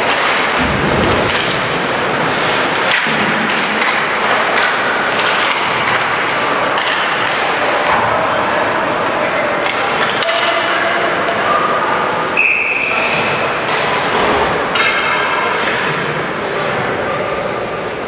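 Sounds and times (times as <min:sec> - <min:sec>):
skates and sticks on ice: 0:00.0 - 0:12.2.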